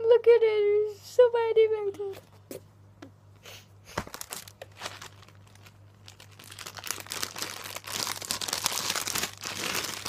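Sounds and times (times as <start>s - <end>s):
plastic packaging crinkling: 3.9s - 10.0s.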